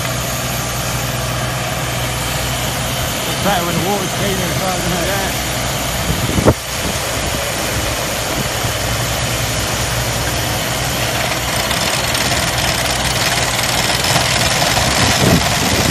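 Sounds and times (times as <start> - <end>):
water and air spraying: 0.0 - 11.6
diesel engine running: 0.0 - 15.9.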